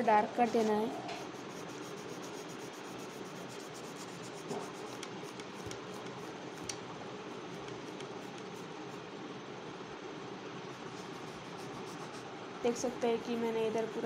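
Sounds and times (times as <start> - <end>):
steady background noise: 0.0 - 14.0
pencil scratching on paper: 0.4 - 6.0, 10.9 - 12.2.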